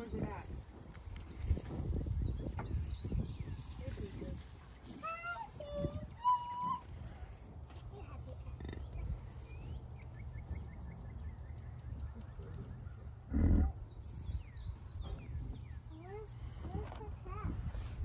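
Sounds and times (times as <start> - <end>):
bison deep grunt: 13.3 - 13.8.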